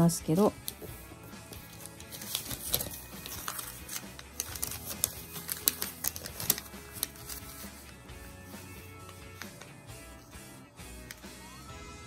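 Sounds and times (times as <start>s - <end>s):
quiet background music: 0.0s - 12.0s
paper rustling: 0.4s - 9.8s.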